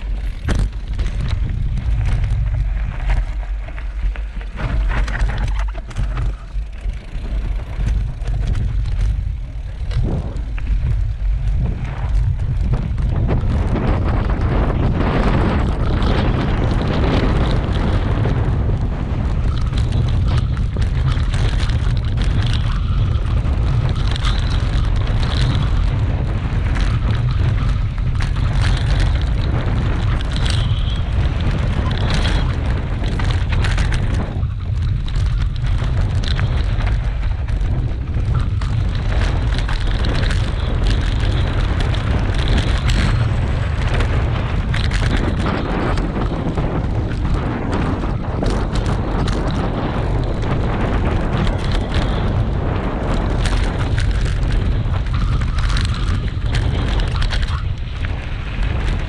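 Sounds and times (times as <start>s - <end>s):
bike rattling and clattering: 0.0s - 59.0s
tyres crunching over stones: 0.0s - 59.0s
wind buffeting microphone: 0.0s - 59.0s.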